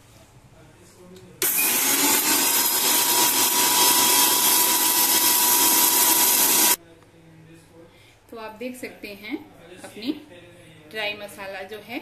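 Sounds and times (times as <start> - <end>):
mixer grinder whining: 1.4 - 6.8.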